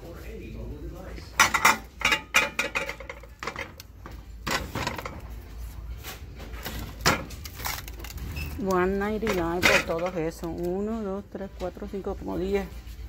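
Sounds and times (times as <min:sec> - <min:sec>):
ceramic plates clicking and knocking: 0:01.4 - 0:05.2, 0:09.3 - 0:10.4.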